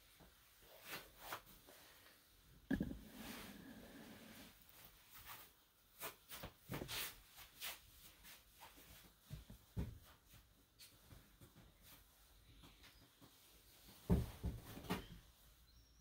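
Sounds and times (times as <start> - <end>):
soft low thumps: 2.7 - 3.2.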